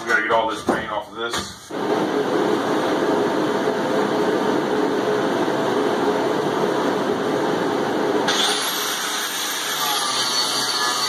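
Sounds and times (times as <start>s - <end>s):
angle grinder grinding metal: 8.3s - 11.0s.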